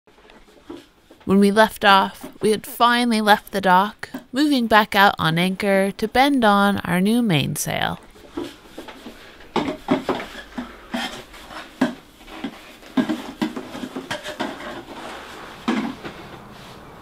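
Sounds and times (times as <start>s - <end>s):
hard objects clattering and knocking: 8.2s - 16.5s.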